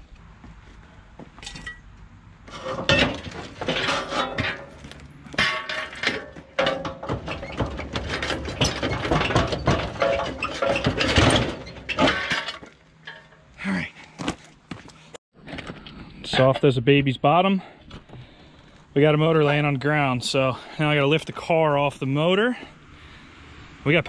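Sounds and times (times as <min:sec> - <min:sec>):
metal hand truck clanking and rattling: 0:02.5 - 0:13.5.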